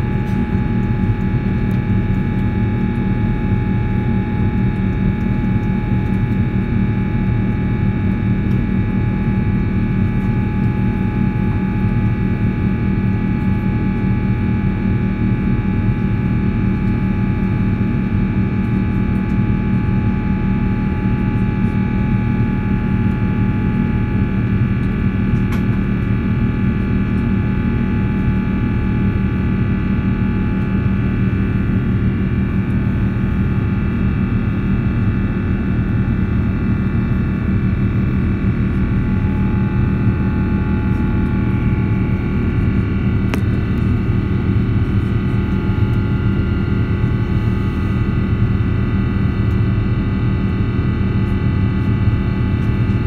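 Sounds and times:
jet engine low rumble: 0:00.0 - 0:53.0
steady engine whining tones: 0:31.3 - 0:49.2.

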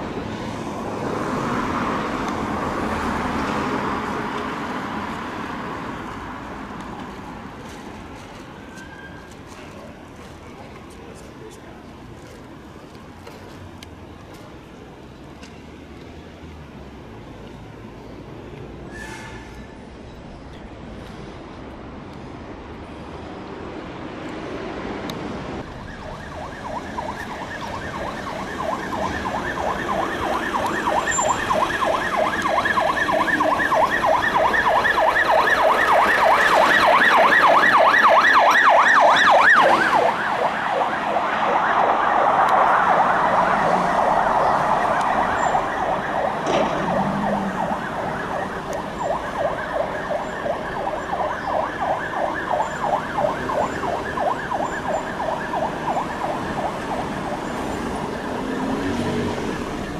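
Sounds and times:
faint siren: 0:25.6 - 0:59.9
police siren yelping: 0:25.6 - 0:59.9.

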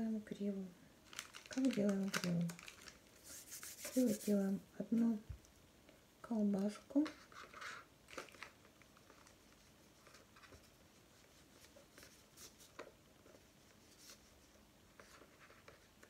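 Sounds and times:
faint rustling: 0:01.1 - 0:05.5.

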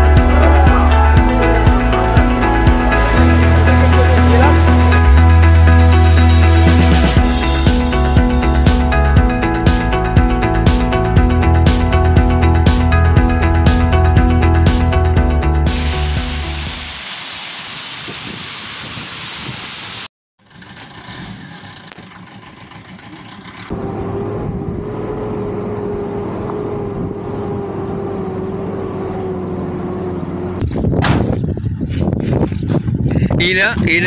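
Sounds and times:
background music: 0:00.0 - 0:16.8.

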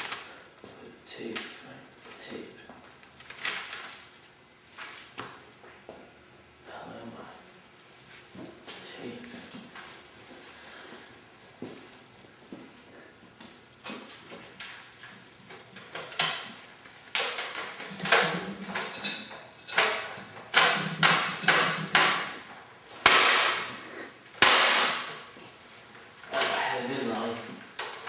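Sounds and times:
knocks and clattering bangs: 0:17.2 - 0:22.4.

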